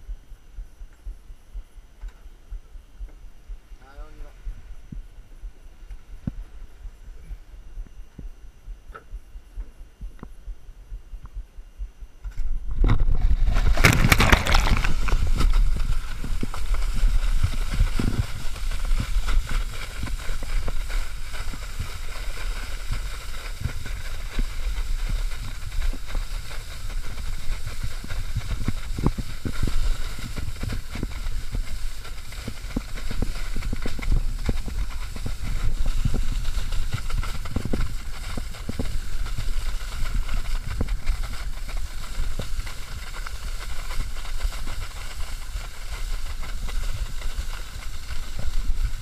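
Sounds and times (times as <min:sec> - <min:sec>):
wind noise on camera: 0:00.0 - 0:49.0
skis slapping water: 0:13.4 - 0:49.0.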